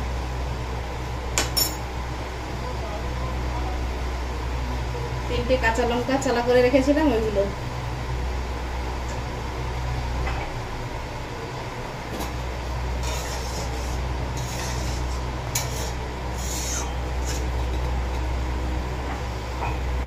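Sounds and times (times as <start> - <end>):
gas stove rumble: 0.0 - 20.0
metal spatula scraping pot: 13.0 - 18.2.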